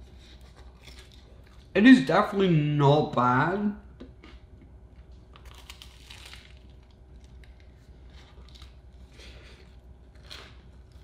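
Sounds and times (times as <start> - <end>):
biting and chewing crispy bread: 4.2 - 11.0.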